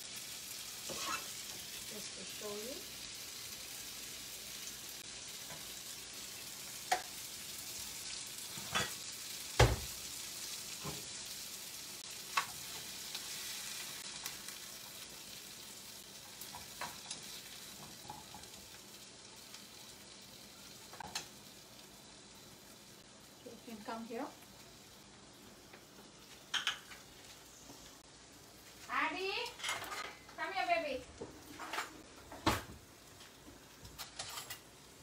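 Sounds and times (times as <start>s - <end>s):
curry sizzling in a frying pan: 0.0s - 35.0s
metal spatula scraping a pan: 0.8s - 1.6s, 34.0s - 34.7s
spatula clinking on metal: 34.0s - 34.6s.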